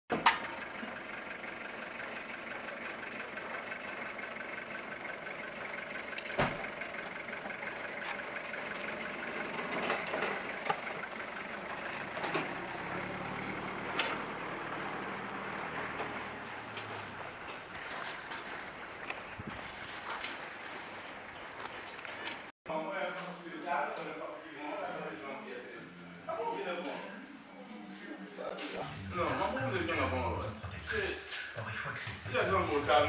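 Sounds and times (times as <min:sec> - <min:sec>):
distant motor vehicle engine hum: 0:00.1 - 0:22.5.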